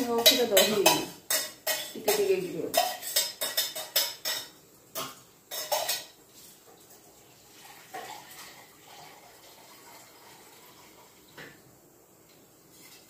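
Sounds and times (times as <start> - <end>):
metal utensil clinking on pot: 0.0 - 6.2.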